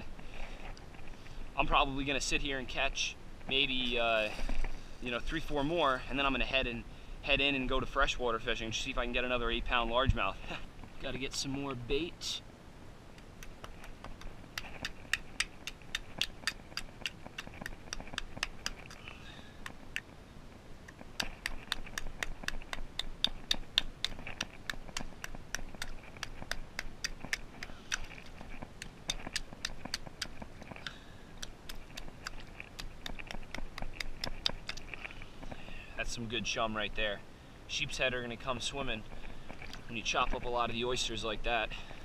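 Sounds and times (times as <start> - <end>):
rock chopping oyster shells: 21.1 - 35.0.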